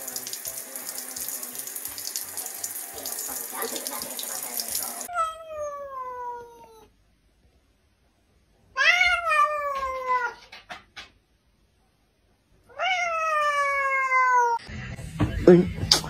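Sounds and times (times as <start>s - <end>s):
cat meowing: 5.0s - 6.9s, 8.7s - 10.5s, 12.7s - 14.6s.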